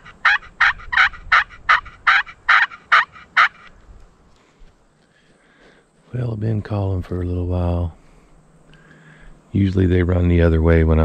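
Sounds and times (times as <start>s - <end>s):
turkey call yelps: 0.0s - 3.7s.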